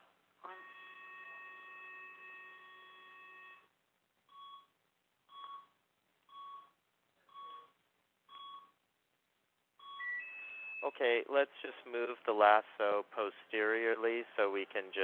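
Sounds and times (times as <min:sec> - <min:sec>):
faint electronic beeping: 0:00.4 - 0:08.8, 0:09.8 - 0:11.2.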